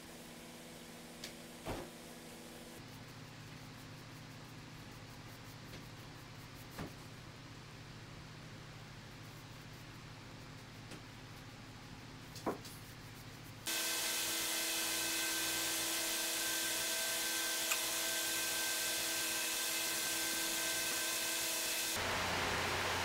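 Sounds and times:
faint steady hum: 0:00.0 - 0:13.7.

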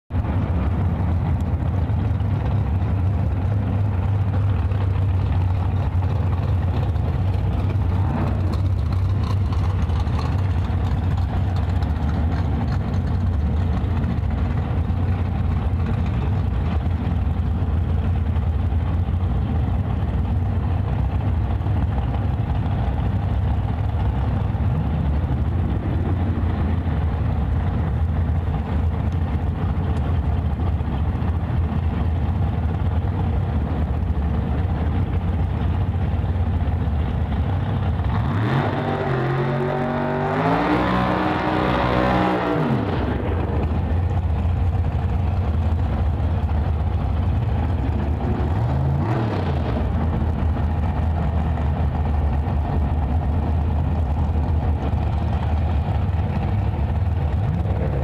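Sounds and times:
truck engine idling: 0:00.1 - 0:38.5, 0:42.9 - 0:58.0.

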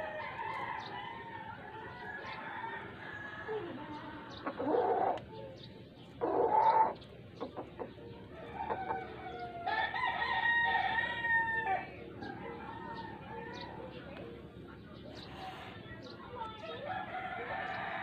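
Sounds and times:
rooster crowing: 0:08.6 - 0:13.6.

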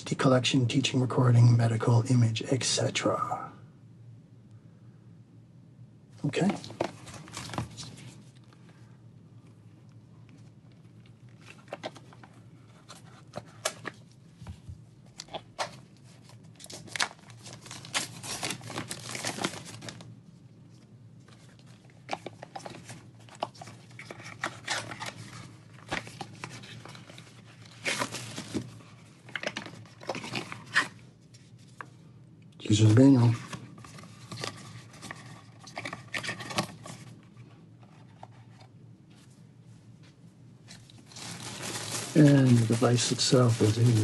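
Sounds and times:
plastic wrap crinkling and tearing: 0:15.2 - 0:20.1, 0:21.4 - 0:31.0, 0:40.7 - 0:44.0.

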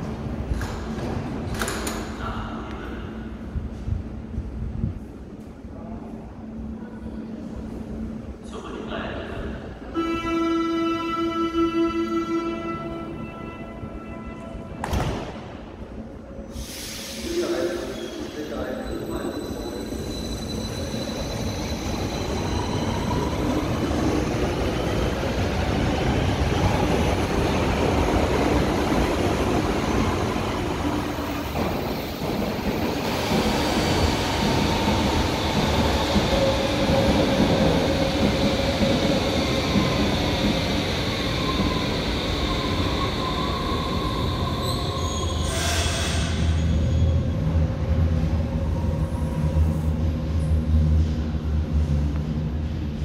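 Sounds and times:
rail noise: 0:00.0 - 0:53.0
train wheel squeal: 0:16.7 - 0:23.6, 0:41.3 - 0:47.3.

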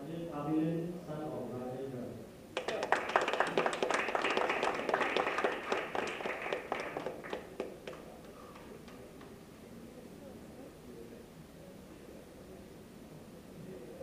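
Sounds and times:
audience applauding: 0:02.6 - 0:09.0.

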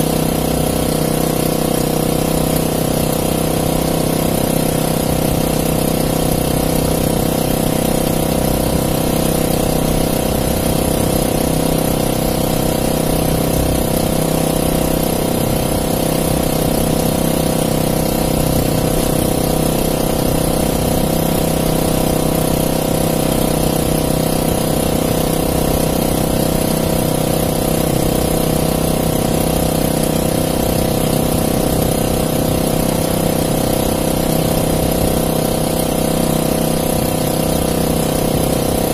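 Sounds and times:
small boat engine running: 0:00.0 - 0:38.9.

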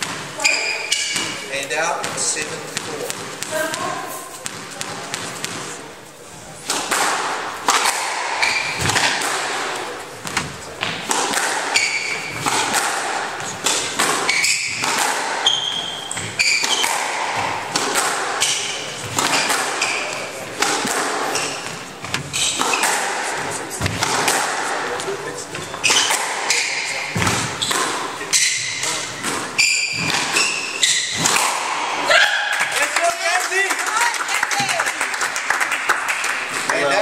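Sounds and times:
shoes squeaking on wooden floor: 0:00.0 - 0:05.5, 0:08.3 - 0:24.2, 0:24.8 - 0:31.5
squash ball thuds: 0:00.0 - 0:05.8, 0:06.6 - 0:32.8.

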